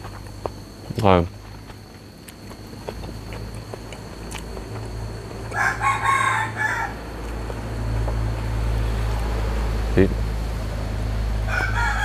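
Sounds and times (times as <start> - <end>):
low steady hum: 0.0 - 12.0
rooster crowing: 5.2 - 8.1, 11.3 - 12.0.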